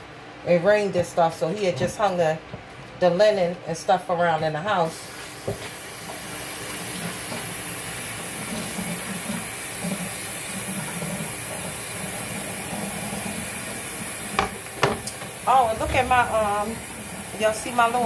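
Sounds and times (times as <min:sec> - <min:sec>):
cutting board knocking on table: 0:14.4 - 0:15.2.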